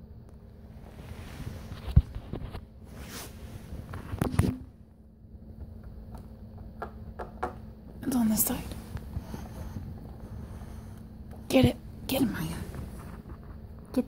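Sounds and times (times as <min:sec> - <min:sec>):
rustling movement near microphone: 0:00.7 - 0:04.8, 0:08.2 - 0:13.9.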